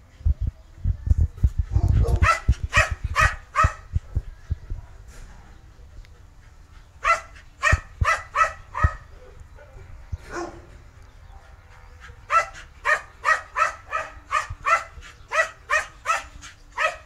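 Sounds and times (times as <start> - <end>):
small dog barking: 1.9 - 3.9, 7.0 - 9.0, 12.3 - 17.0.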